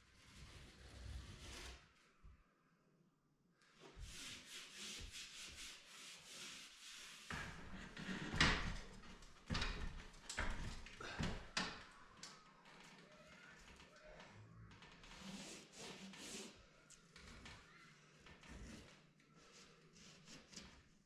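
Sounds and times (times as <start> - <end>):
tape rubbed onto plasterboard: 0.2 - 1.8, 4.0 - 7.8, 15.2 - 16.6.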